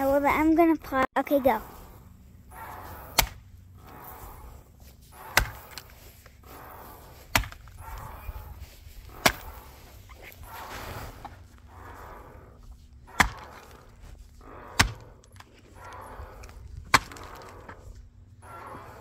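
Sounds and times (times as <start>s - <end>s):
axe striking wood: 3.1s - 3.4s, 5.3s - 5.9s, 7.3s - 7.7s, 9.2s - 9.5s, 13.1s - 13.7s, 14.7s - 15.0s, 16.9s - 17.5s.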